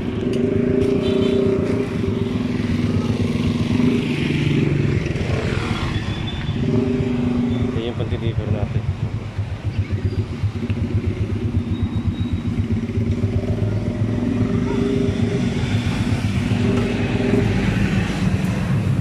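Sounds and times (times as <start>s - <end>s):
motorcycle engine running: 0.0s - 19.0s.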